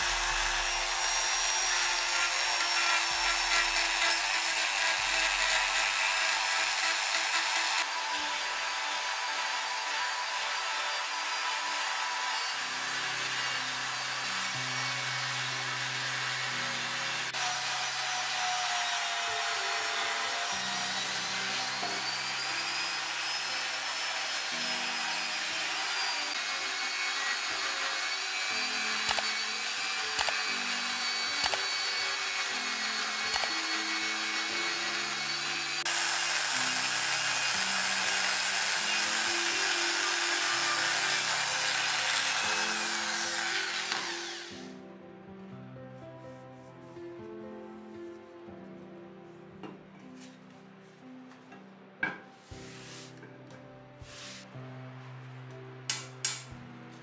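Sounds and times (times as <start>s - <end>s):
rotary tool grinding metal: 0.0s - 44.7s
background music low held notes: 28.4s - 57.0s.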